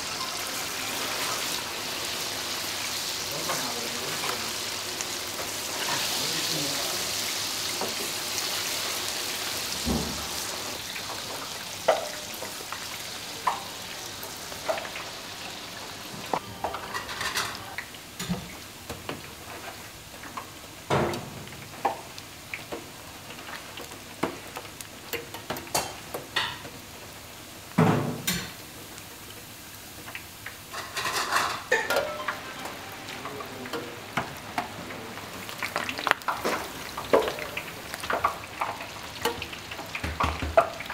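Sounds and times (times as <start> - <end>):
deep-frying oil sizzling: 0.0 - 40.9
metal utensils knocking fryer: 5.3 - 8.4, 9.5 - 12.8, 13.4 - 15.1, 16.1 - 26.8, 27.7 - 28.9, 30.0 - 34.9, 35.6 - 40.9.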